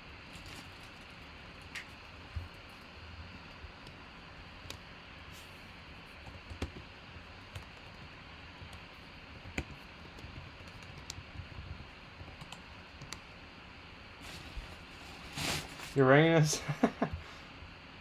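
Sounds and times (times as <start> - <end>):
typing on computer keyboard: 9.4 - 11.5, 12.2 - 13.2.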